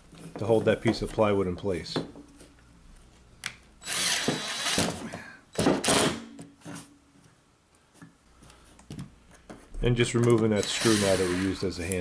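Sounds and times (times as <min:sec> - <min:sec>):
impact driver driving a screw: 0:03.8 - 0:05.0, 0:10.6 - 0:11.6.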